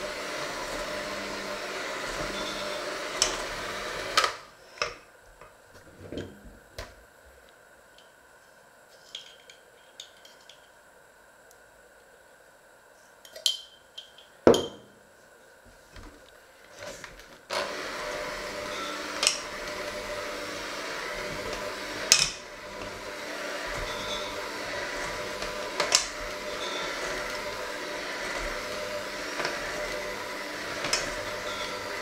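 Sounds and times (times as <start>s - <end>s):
electric hand mixer running: 0.0s - 4.6s, 17.5s - 32.0s.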